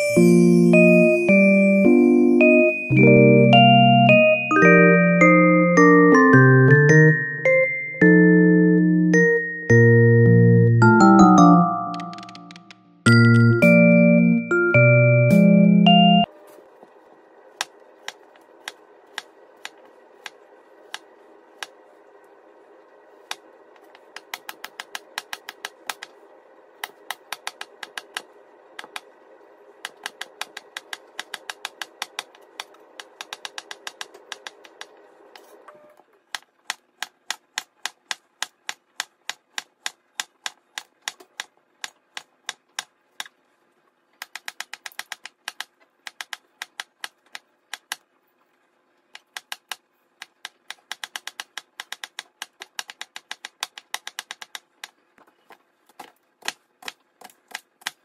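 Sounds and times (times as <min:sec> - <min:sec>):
knife chopping on plastic board: 0:24.1 - 0:26.1, 0:29.8 - 0:34.9, 0:36.4 - 0:43.3, 0:49.2 - 0:54.9, 0:55.9 - 0:58.0.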